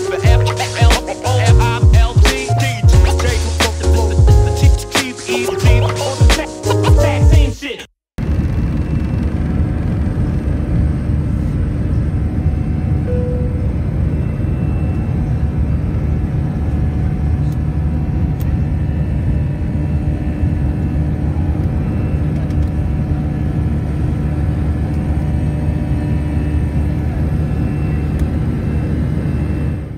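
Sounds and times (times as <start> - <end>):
jet engines rumbling: 8.2 - 29.9.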